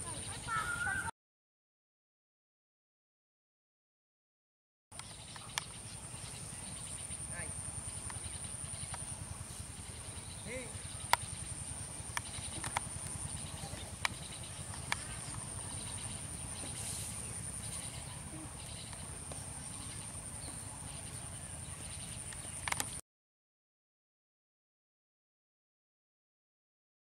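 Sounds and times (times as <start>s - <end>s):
high-pitched insect drone: 5.0s - 23.0s
sharp clicks: 12.1s - 13.2s.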